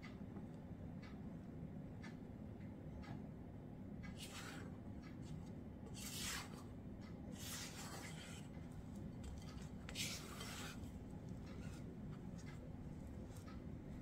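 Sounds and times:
low steady hum: 0.0 - 14.0
spatula scraping dough in bowl: 4.1 - 14.0.

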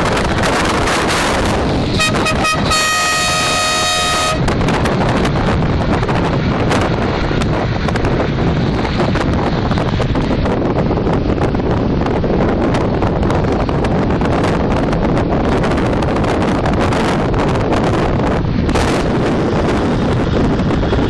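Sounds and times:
road and wind noise: 0.0 - 21.0
car horn honking: 2.0 - 4.5.

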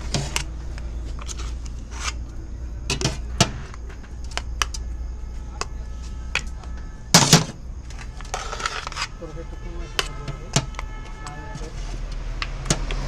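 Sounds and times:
metal spoon scraping a pot: 0.0 - 2.3, 7.3 - 13.0
steady low hum: 0.0 - 13.0.

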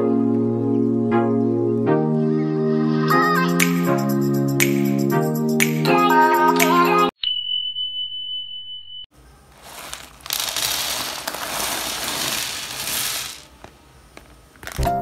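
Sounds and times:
plastic blocks clattering onto heap: 9.6 - 13.7, 14.6 - 15.0.

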